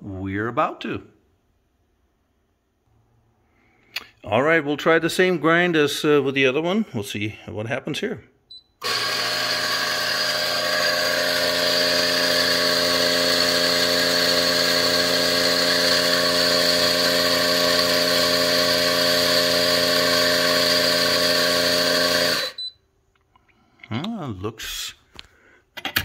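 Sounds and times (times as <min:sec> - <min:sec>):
coffee grinder motor whine: 0:08.8 - 0:22.7.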